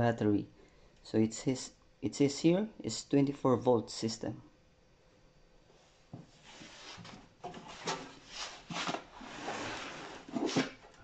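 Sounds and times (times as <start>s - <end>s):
cardboard scraping and rustling: 6.4s - 11.0s.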